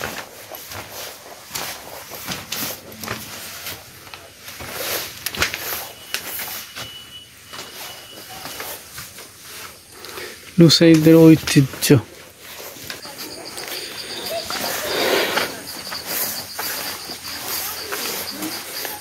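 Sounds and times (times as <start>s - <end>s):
footsteps on wooden floor: 0.0s - 9.8s.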